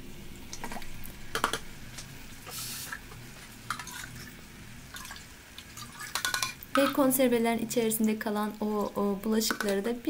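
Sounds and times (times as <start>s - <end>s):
short soft hiss: 2.4s - 3.0s.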